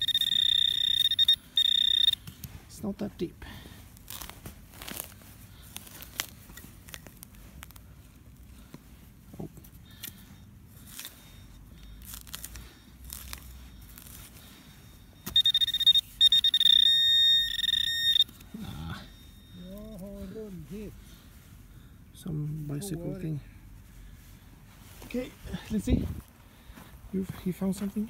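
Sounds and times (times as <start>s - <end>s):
metal detector beeping: 0.0s - 2.9s, 9.8s - 20.7s.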